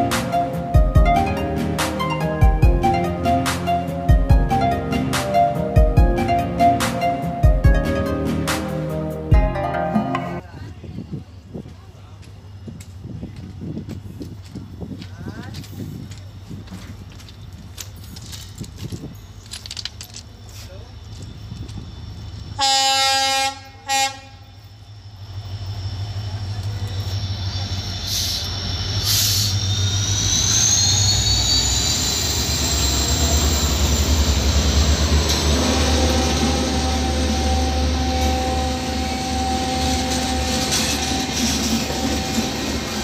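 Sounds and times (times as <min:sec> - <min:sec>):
wheels on rails: 0:11.6 - 0:22.6
locomotive horn: 0:22.6 - 0:24.5, 0:35.2 - 0:42.6
wheel squeal: 0:25.0 - 0:43.0
diesel engine accelerating: 0:25.2 - 0:43.0.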